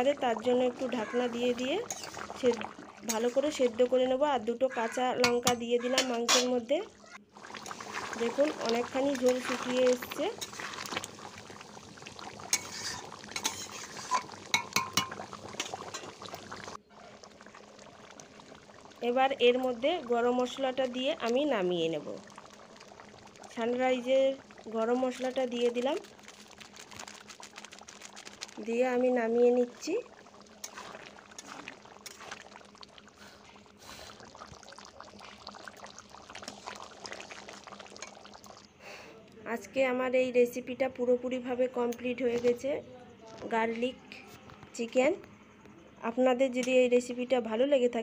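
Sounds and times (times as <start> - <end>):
curry bubbling: 0.0 - 39.0
metal spoon scraping metal pan: 1.9 - 2.2, 12.5 - 15.1.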